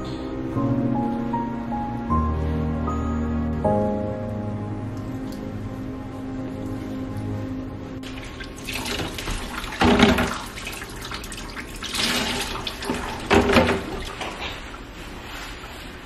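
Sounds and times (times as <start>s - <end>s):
soft music: 0.0s - 10.0s
water splashing and gurgling: 8.0s - 15.0s.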